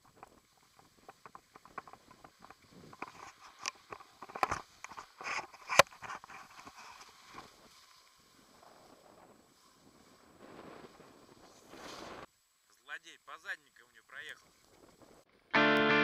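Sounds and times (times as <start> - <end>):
skis sliding over packed snow: 0.0 - 12.3.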